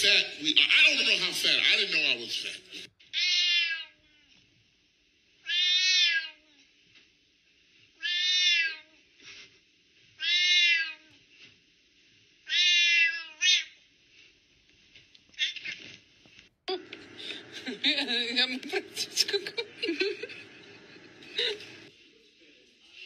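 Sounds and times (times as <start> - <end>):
cat meowing: 3.1 - 4.3, 5.4 - 6.6, 8.0 - 9.0, 10.2 - 11.2, 12.5 - 13.8.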